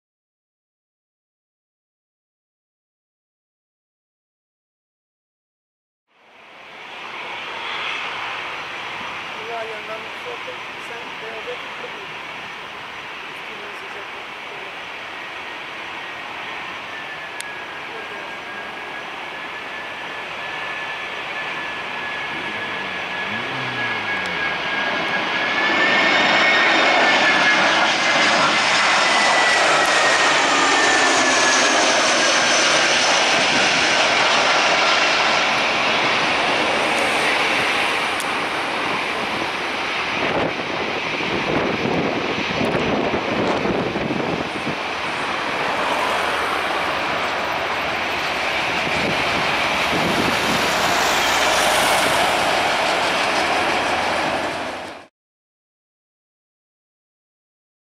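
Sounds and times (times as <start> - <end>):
jet engines whining overhead: 6.2 - 55.1
airliner touchdown rumble: 16.6 - 55.0.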